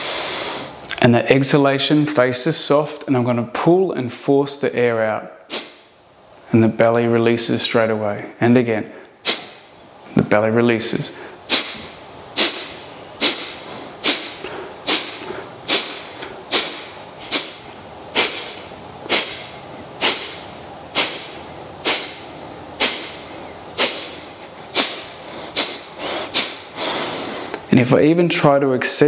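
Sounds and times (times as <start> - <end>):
forceful exhalations through nose: 0.0 - 0.8, 11.1 - 22.2, 22.8 - 27.6.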